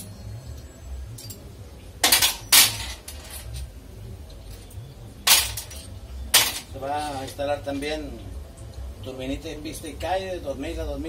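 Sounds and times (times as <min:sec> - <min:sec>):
metal clanking on workbench: 0:02.0 - 0:03.7, 0:05.2 - 0:07.4.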